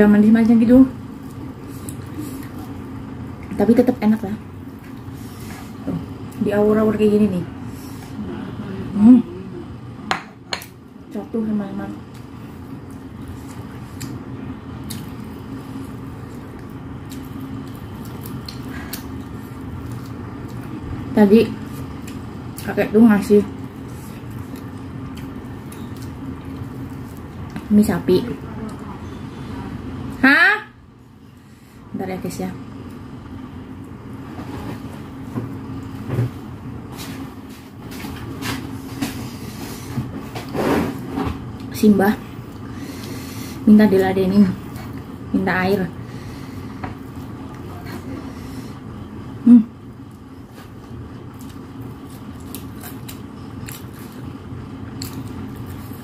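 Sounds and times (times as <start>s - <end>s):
steady low hum: 0.0s - 56.0s
person chewing food: 12.1s - 21.0s, 21.6s - 22.7s, 23.6s - 27.7s, 50.1s - 56.0s.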